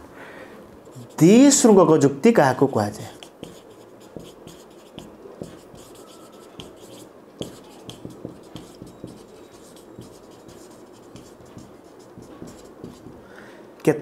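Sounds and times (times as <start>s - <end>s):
marker scratching on whiteboard: 0.9s - 1.6s, 3.1s - 13.2s
marker tapping: 3.1s - 13.3s.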